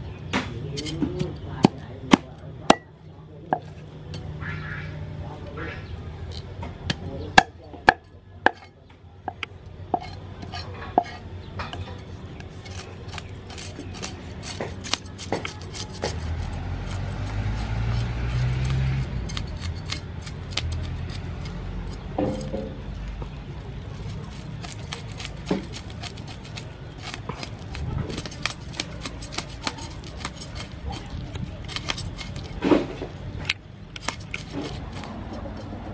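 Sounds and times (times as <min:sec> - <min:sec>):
cleaver scraping fish scales: 0:00.7 - 0:01.8, 0:09.9 - 0:35.9
blade knocking wooden board: 0:24.6 - 0:33.1.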